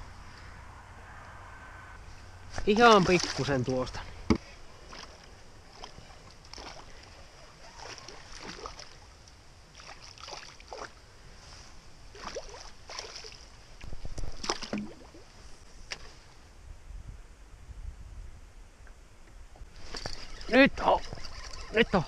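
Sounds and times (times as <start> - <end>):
fish splashing into water: 7.6 - 9.1, 14.4 - 15.2.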